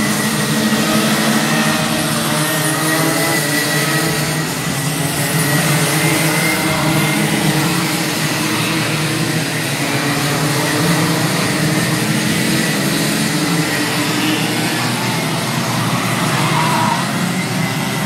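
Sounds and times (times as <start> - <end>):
racing kart engines high-revving: 0.0 - 18.0.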